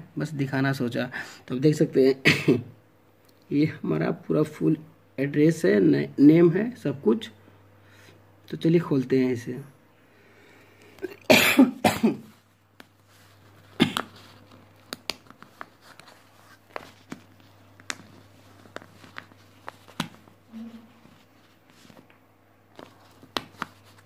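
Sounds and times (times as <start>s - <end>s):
paper envelope crackling: 12.8s - 24.0s.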